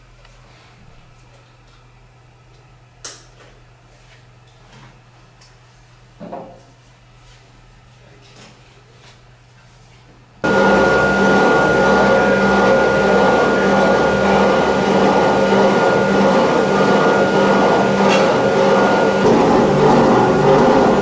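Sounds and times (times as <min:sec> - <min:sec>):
electric blower rushing air: 0:10.4 - 0:21.0.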